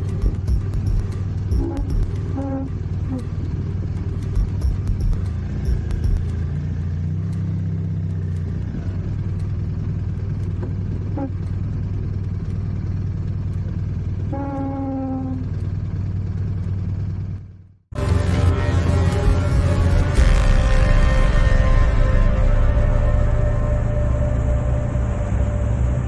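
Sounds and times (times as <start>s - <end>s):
short steady pitched tone: 0.0s - 3.3s, 4.4s - 6.4s, 18.0s - 26.0s
motorcycle engine running: 0.0s - 26.0s.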